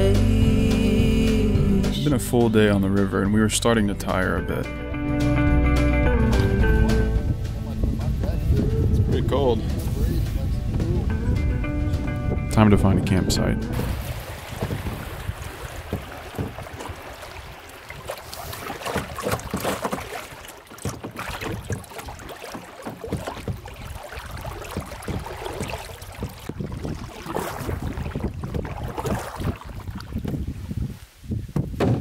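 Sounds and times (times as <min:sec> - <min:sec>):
river water splashing against hull: 0:00.0 - 0:32.0
wind buffeting microphone: 0:06.5 - 0:32.0
wooden paddle strokes swishing: 0:15.3 - 0:31.0.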